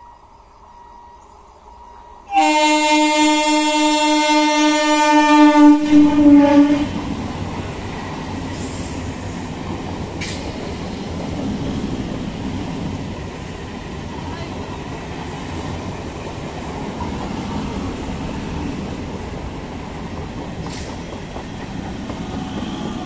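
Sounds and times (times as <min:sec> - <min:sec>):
train coaches rumbling and clattering: 0:00.0 - 0:23.0
train horn blast: 0:02.3 - 0:07.1.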